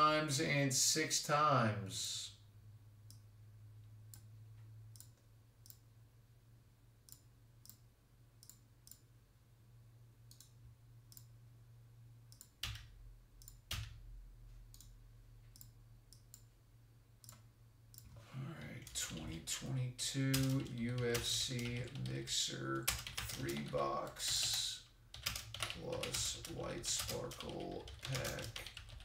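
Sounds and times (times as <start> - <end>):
low electrical hum: 0.0 - 29.0
computer mouse clicks: 5.0 - 5.8, 8.4 - 9.1, 10.3 - 11.3, 12.3 - 14.0, 14.7 - 16.5.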